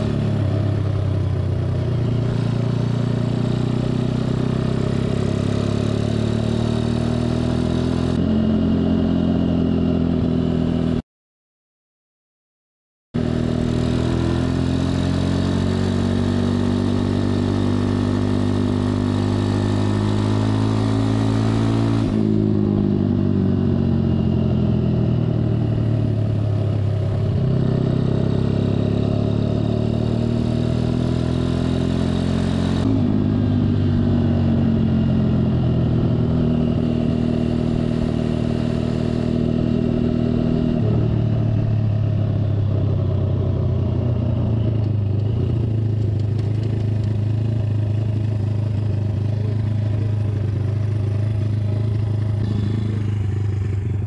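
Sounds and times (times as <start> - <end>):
minibike engine running: 44.9 - 54.0.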